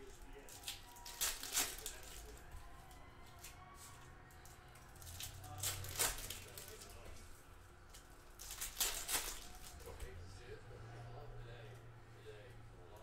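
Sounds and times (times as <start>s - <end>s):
foil wrappers crinkling: 0.0s - 7.3s, 7.9s - 9.9s.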